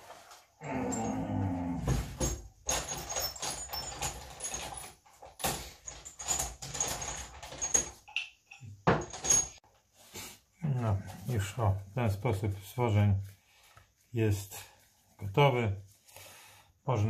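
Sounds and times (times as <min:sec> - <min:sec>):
steel parts clinking and clattering: 0:02.0 - 0:09.7.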